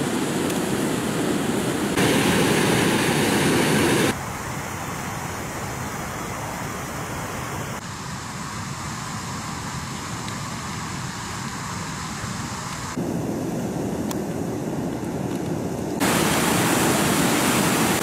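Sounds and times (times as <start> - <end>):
water rushing over weir: 0.0 - 7.8, 16.0 - 18.0
steady outdoor hiss: 0.0 - 18.0.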